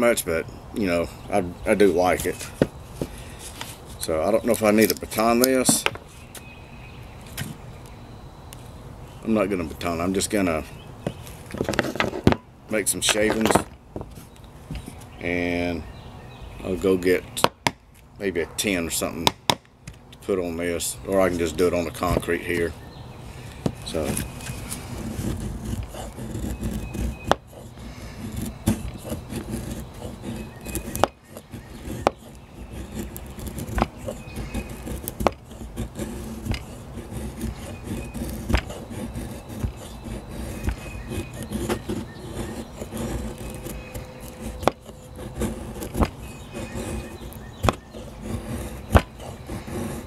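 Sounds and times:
low background hum: 0:00.0 - 0:50.0
knife shaving wood: 0:01.8 - 0:06.3, 0:21.2 - 0:50.0.

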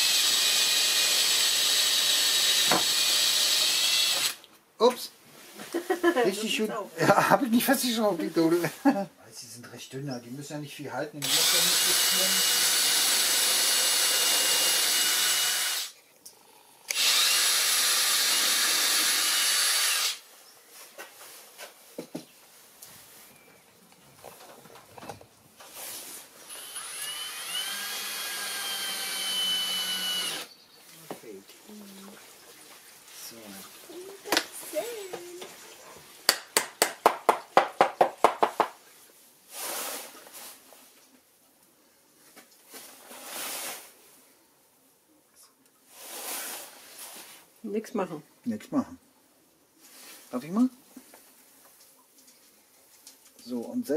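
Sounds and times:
drill boring into wood: 0:00.0 - 0:04.4, 0:11.2 - 0:16.0, 0:16.9 - 0:20.2, 0:26.5 - 0:30.5
brief hiss: 0:39.5 - 0:40.7, 0:42.8 - 0:44.0, 0:45.9 - 0:47.5.

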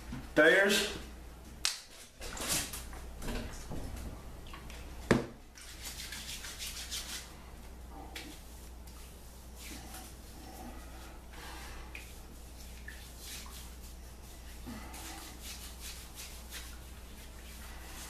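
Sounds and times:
wet rubbing and patting on face: 0:04.6 - 0:18.0.

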